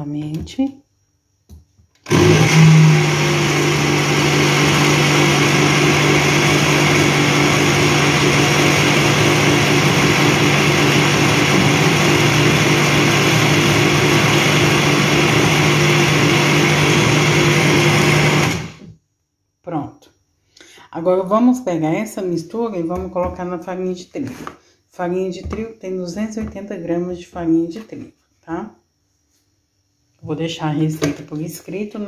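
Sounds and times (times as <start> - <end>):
blender motor running: 2.0 - 18.9.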